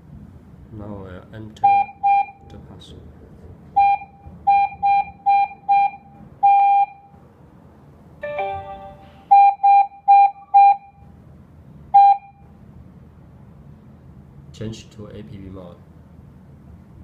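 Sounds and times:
multi-note panel tone: 8.2 - 10.8.

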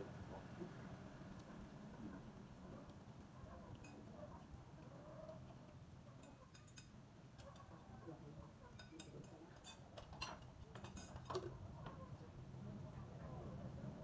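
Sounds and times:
chopsticks clinking on bowls: 3.7 - 4.1, 6.1 - 7.8, 8.7 - 11.5.

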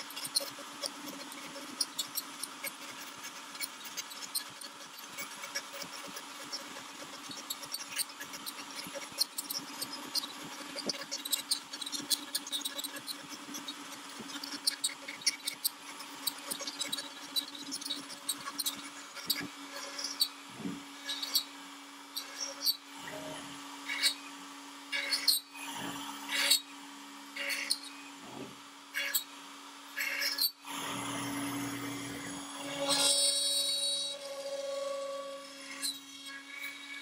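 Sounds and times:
bit cutting wood ticks: 0.0 - 20.4
router motor hum: 0.0 - 37.0.

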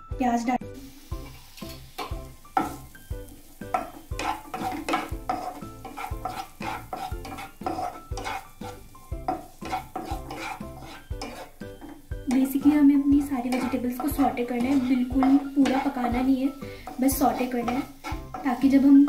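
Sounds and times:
background music with steady beat: 0.0 - 19.0
onions sizzling: 0.7 - 19.0
wooden spatula stirring in pan: 0.8 - 19.0.

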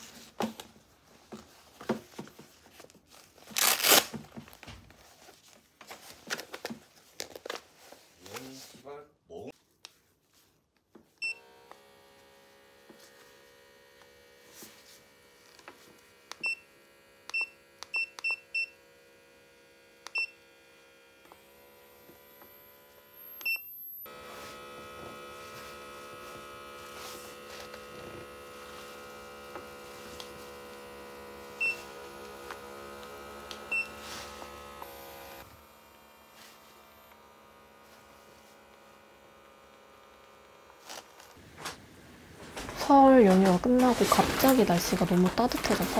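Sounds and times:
air pump humming: 11.4 - 45.9.

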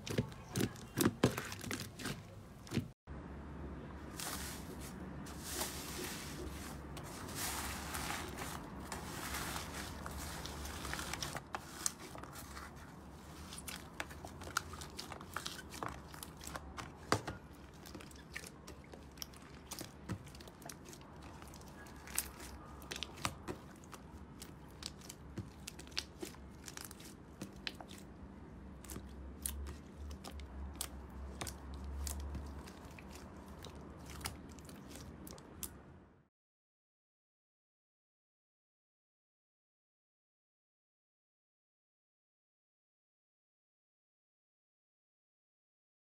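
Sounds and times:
slime clicking and crunching: 7.0 - 35.8.

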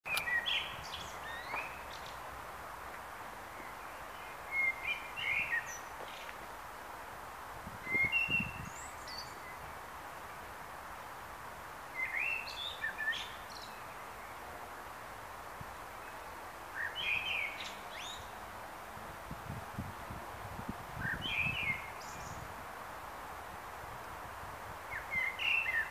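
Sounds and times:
blackbird singing: 0.1 - 2.2, 3.5 - 6.2, 7.9 - 9.6, 12.0 - 14.0, 16.8 - 18.3, 21.0 - 22.4, 24.9 - 25.9
background hiss: 0.1 - 25.9.

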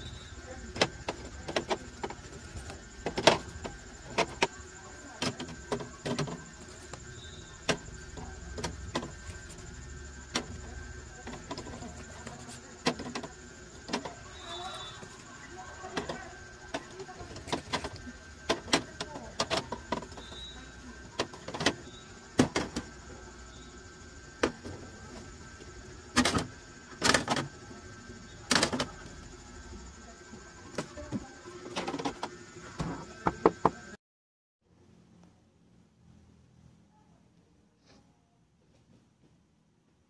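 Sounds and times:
bottles clicking on plastic shelves: 0.7 - 4.5.

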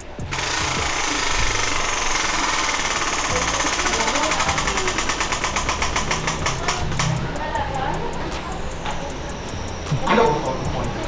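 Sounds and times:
prize wheel pointer clicking rapidly: 0.0 - 11.0.

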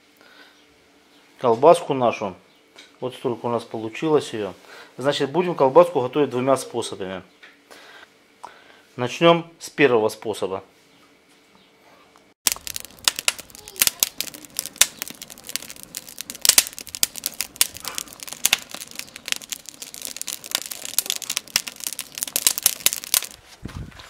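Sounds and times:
firewood crackling and popping: 12.4 - 23.6.

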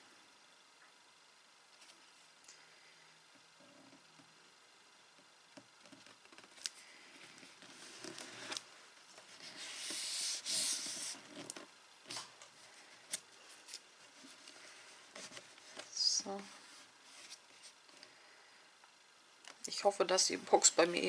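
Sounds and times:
paper rubbing rustle: 7.3 - 8.6, 9.3 - 12.2.

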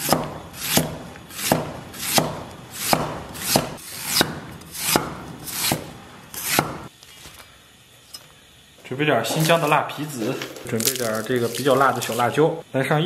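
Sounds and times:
cleaver slicing ginger on board: 0.0 - 6.9.

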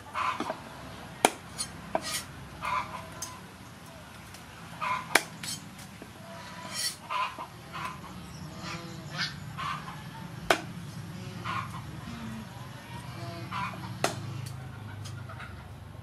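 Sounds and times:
poultry calling: 0.0 - 16.0.

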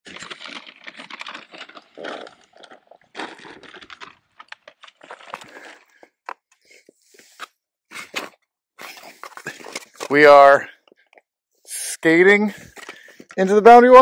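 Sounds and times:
paper map rustling and crinkling: 0.1 - 1.9, 3.2 - 10.3.

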